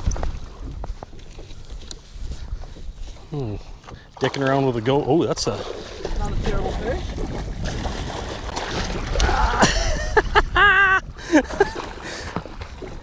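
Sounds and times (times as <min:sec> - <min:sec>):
fish thrashing and splashing: 0:05.4 - 0:10.1.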